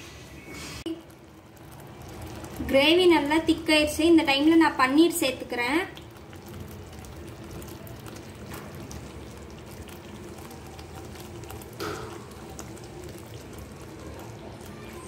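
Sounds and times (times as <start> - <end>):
gravy bubbling in a pan: 0.0 - 15.0.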